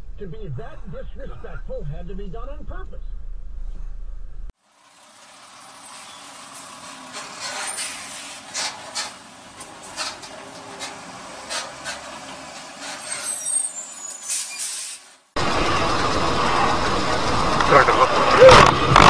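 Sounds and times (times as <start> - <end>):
trucks passing: 3.4 - 19.0
high squeal: 7.1 - 9.1, 12.8 - 15.1
short sharp hisses: 14.2 - 15.2.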